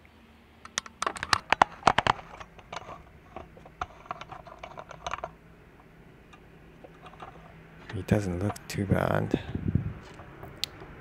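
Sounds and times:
sharp clicks and knocks: 0.6 - 8.7.

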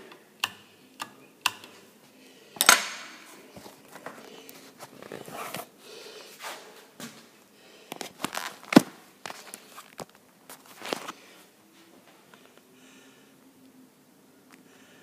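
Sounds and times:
wall switch clicking: 0.0 - 1.8
footsteps: 6.3 - 7.3.

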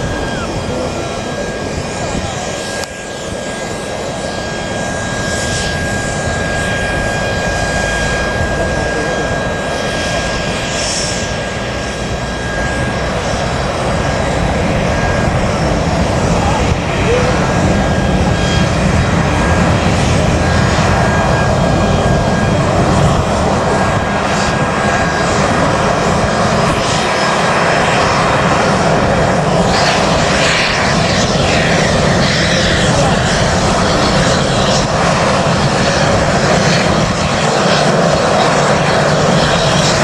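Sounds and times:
jet engines taxiing: 0.0 - 40.0.

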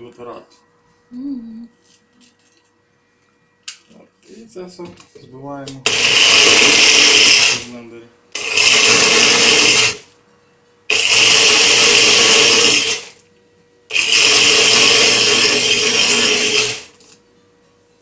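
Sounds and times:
blender motor pulsing: 5.8 - 7.7, 8.3 - 10.1, 10.9 - 13.2, 13.9 - 17.1.

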